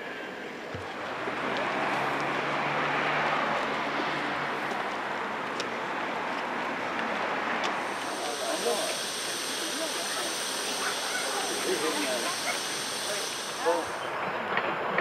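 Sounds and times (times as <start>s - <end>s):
steam locomotive hissing steam: 6.7s - 15.0s.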